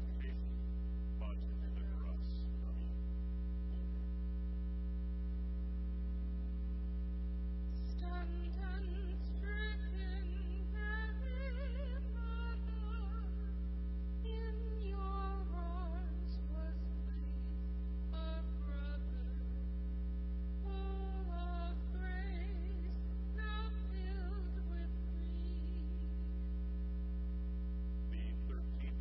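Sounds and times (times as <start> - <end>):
electrical mains hum: 0.0 - 29.0
woman singing a hymn: 7.8 - 13.5, 14.2 - 19.4, 20.6 - 26.2.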